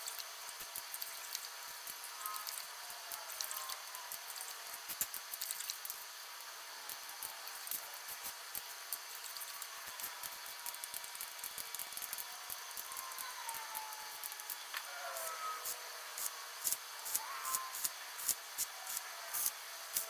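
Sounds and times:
steady hiss: 0.0s - 20.0s
ratchet metallic clicks: 6.9s - 14.7s, 16.2s - 20.0s.

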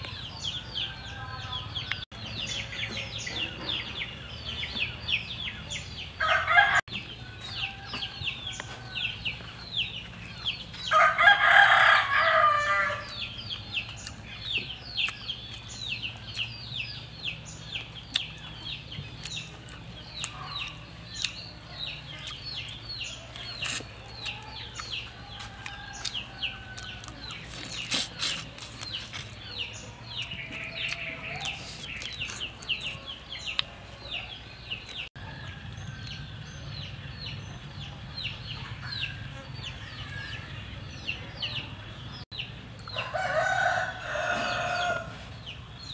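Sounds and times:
rooster crowing: 6.2s - 6.8s, 10.8s - 13.2s, 24.1s - 27.3s, 42.9s - 45.2s.

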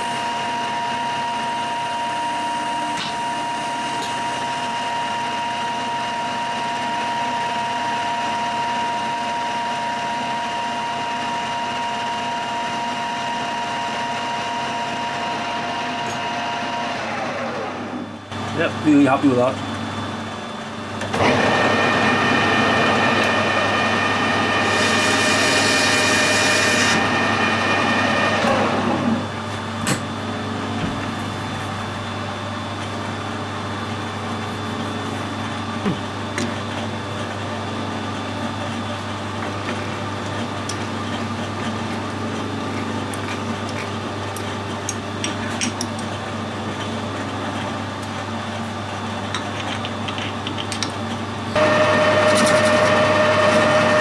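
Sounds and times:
metal lathe running: 21.1s - 30.0s, 39.3s - 54.0s
clicks and knocks in chuck: 49.4s - 51.0s.

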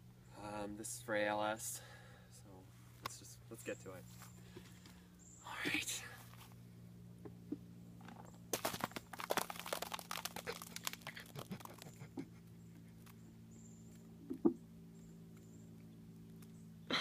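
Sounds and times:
wet splats and drips: 8.6s - 12.0s.

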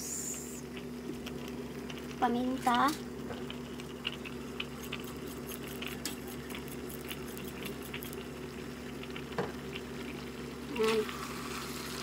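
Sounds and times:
food sizzling in a wok: 10.2s - 12.0s.

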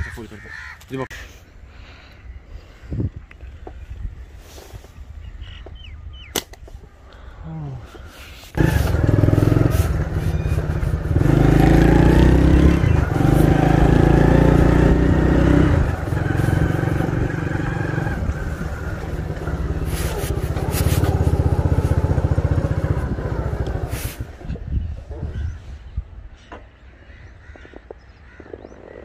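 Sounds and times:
motorcycle engine running: 8.6s - 24.7s.

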